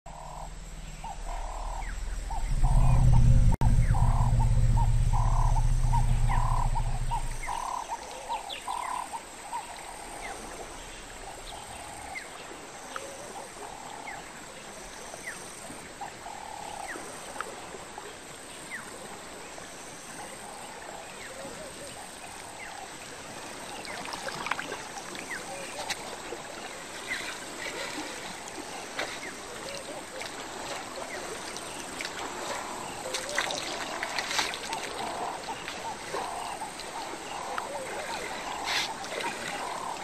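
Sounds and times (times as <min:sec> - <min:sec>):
deep low rumble: 0:00.1 - 0:07.9
frogs croaking: 0:00.1 - 0:14.2, 0:20.0 - 0:40.0.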